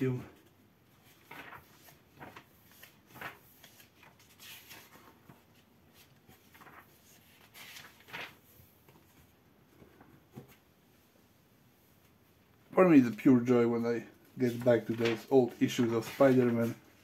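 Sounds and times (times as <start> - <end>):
book pages turning: 0.9 - 9.3, 14.4 - 17.0.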